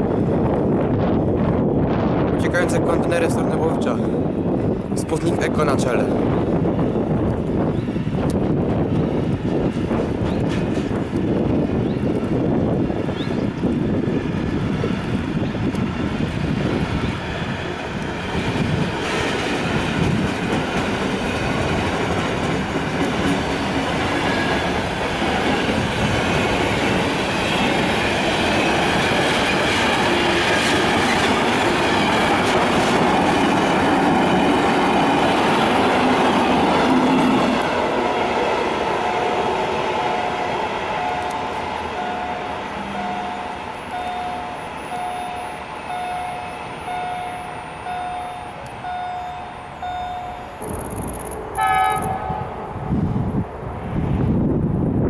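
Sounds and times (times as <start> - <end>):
train wheels rumbling on track: 0.0 - 55.0
electronic beeping: 42.0 - 52.2.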